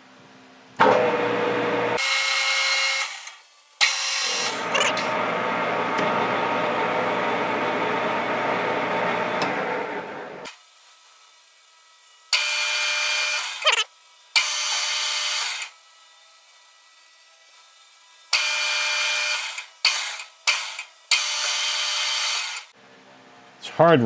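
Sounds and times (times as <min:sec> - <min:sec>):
lathe motor whine: 0:03.8 - 0:10.5.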